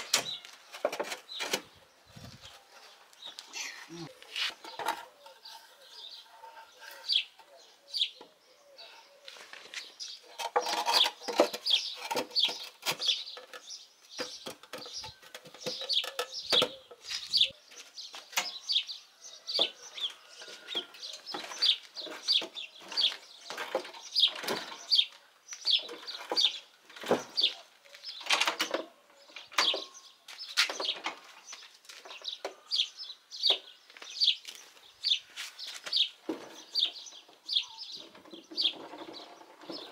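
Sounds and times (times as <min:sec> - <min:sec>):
birds chirping: 0:00.0 - 0:39.9
wooden jack knocking and clattering: 0:10.3 - 0:17.5, 0:20.7 - 0:25.0.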